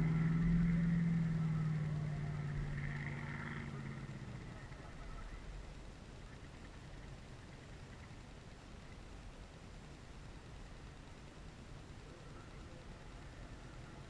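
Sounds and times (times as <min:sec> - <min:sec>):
racing car engine: 0:00.0 - 0:07.1, 0:11.8 - 0:14.0
faint outdoor hiss: 0:00.0 - 0:14.0.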